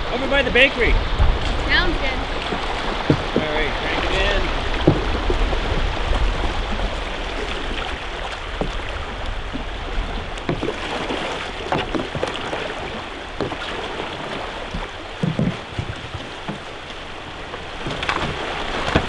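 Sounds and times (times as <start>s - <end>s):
river rapids rushing: 0.0s - 19.0s
paddle splashes and knocks: 0.1s - 19.0s.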